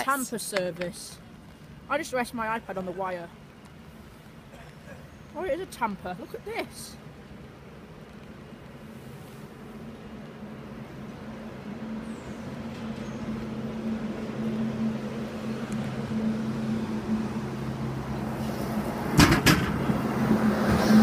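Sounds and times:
diesel engine approaching: 0:02.5 - 0:21.0
sharp knocks: 0:19.2 - 0:20.0.

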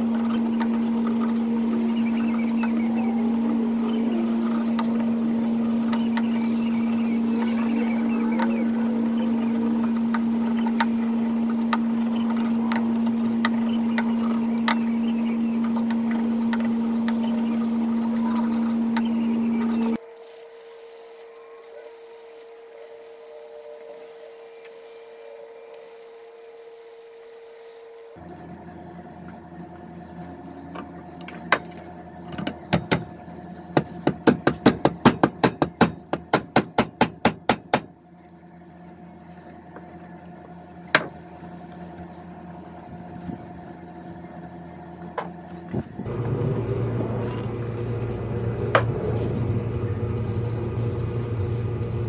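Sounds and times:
low hum: 0:00.0 - 0:20.1, 0:38.0 - 0:52.0
hammer striking wooden wedge: 0:33.8 - 0:37.9
wood scraping on sandpaper: 0:48.4 - 0:52.0.

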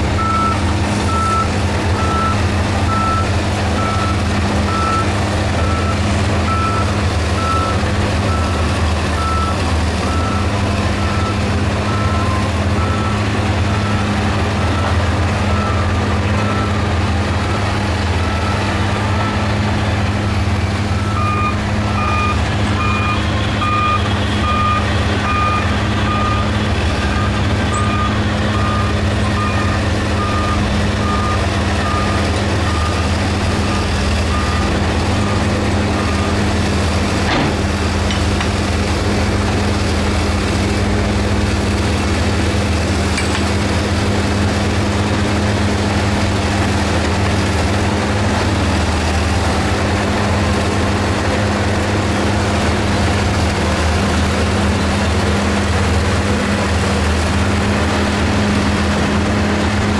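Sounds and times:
heavy diesel machinery running: 0:00.0 - 0:59.9
reversing alarm beeping: 0:00.2 - 0:19.5, 0:20.9 - 0:36.5.

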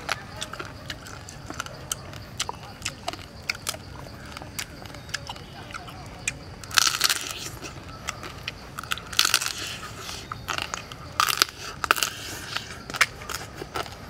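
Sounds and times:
crab shell crunching between teeth: 0:00.0 - 0:14.0.

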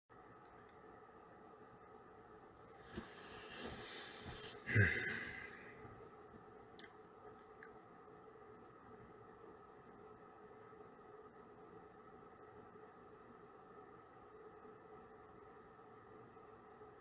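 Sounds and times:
faint steady hum: 0:00.1 - 0:17.0
breathy hiss on microphone: 0:02.6 - 0:05.8.

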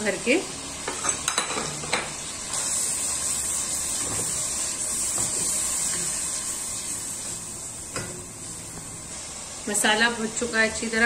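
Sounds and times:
spices sizzling in hot oil: 0:00.0 - 0:11.0
spatula stirring in pot: 0:02.4 - 0:09.3.

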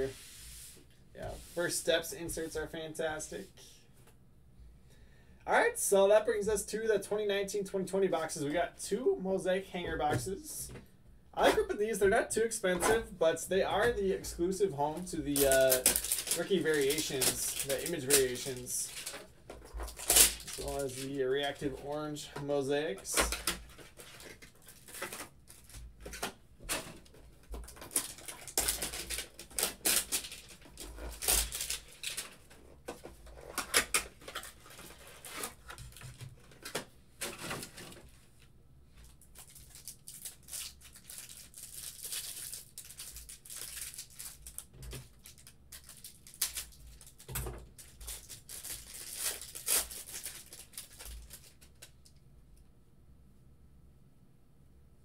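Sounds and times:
cards rustling and shuffling: 0:13.7 - 0:52.0
cardboard and wrapping tearing: 0:15.3 - 0:21.2, 0:27.6 - 0:32.4, 0:33.3 - 0:36.1, 0:39.4 - 0:51.8.

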